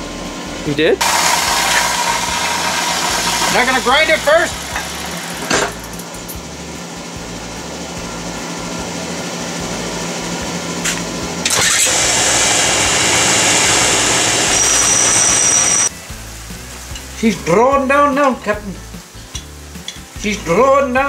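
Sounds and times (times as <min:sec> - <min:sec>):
machine motor running: 0:01.0 - 0:06.1, 0:11.4 - 0:15.9.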